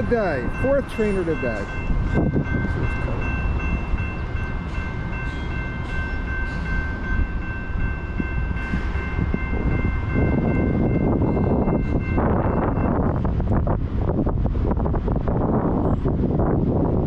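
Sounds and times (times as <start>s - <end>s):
grade crossing warning bell ringing: 0.0s - 13.5s
wind buffeting microphone: 0.0s - 17.0s.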